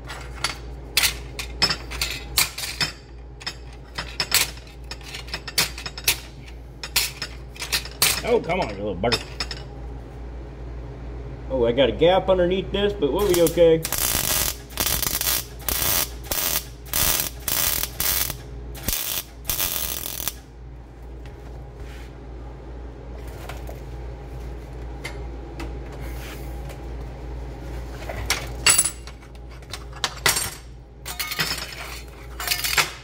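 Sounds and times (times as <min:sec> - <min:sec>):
welder arcing: 0:13.2 - 0:20.5.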